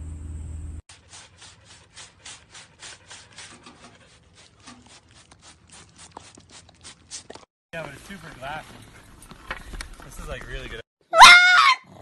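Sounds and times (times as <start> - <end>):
low hum: 0.0 - 0.8.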